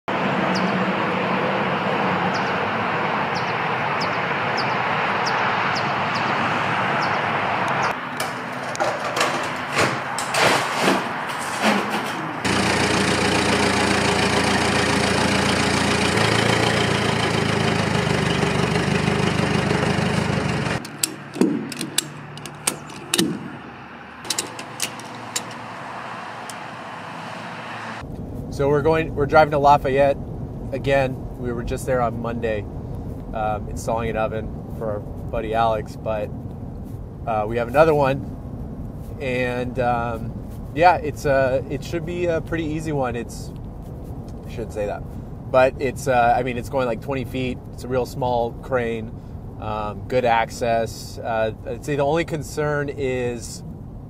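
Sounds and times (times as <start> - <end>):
engine running: 0.1 - 28.5
knocks and clicks: 8.1 - 12.6, 20.7 - 25.8
ratchet strap clicking: 20.8 - 23.5, 24.2 - 25.6.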